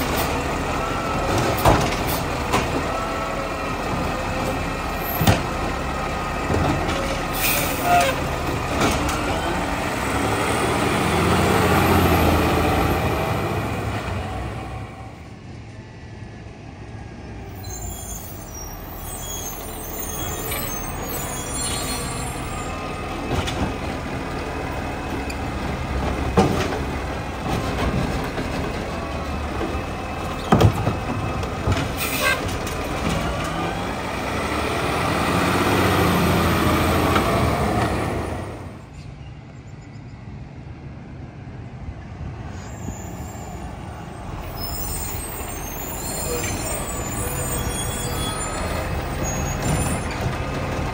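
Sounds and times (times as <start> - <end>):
garbage truck diesel engine revving: 8.2 - 14.8, 22.7 - 38.8.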